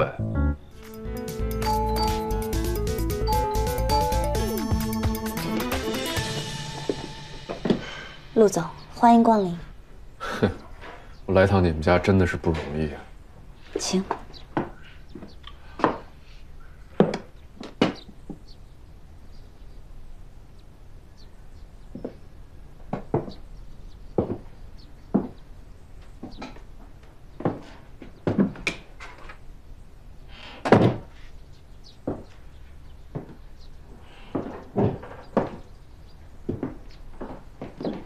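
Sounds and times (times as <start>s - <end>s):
footsteps on hard floor: 6.2s - 8.1s.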